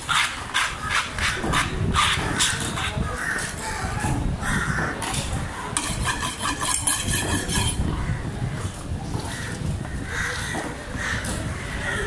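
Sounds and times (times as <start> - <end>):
fish scales rasping: 5.8 - 7.9.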